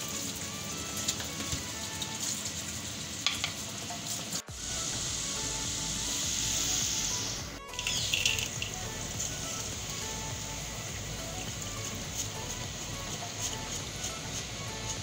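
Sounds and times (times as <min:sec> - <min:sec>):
chips sizzling in hot oil: 0:00.0 - 0:15.0
soft background music: 0:00.0 - 0:15.0.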